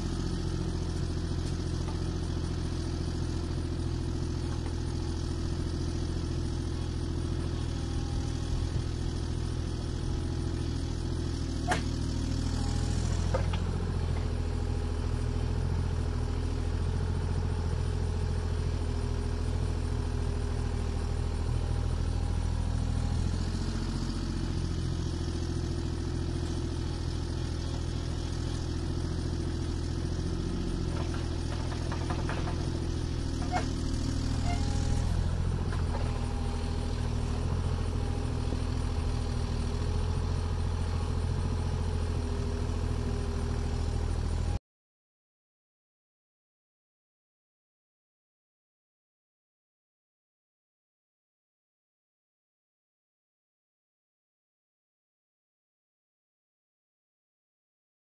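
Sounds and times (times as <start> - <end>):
diesel engine running: 0.0 - 44.6.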